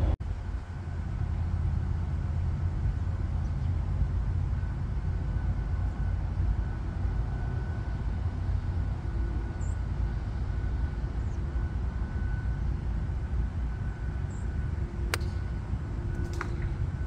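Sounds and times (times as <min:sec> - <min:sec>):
low outdoor rumble: 0:00.0 - 0:17.0
golf club striking ball: 0:15.1 - 0:15.5.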